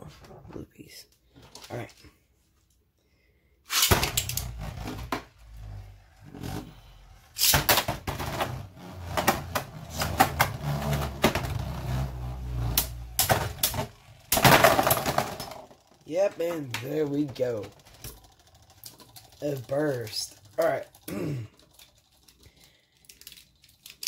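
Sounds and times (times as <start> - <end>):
spinning top bursting apart: 3.7 - 4.9, 7.4 - 7.9
spinning tops whirring: 8.7 - 22.5
plastic tops clacking: 12.7 - 24.0.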